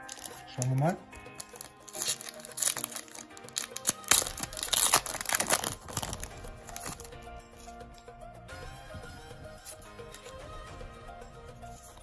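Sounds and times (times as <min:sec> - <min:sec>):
foil wrapper tearing and crinkling: 0:00.0 - 0:07.2
faint background music: 0:00.0 - 0:12.0.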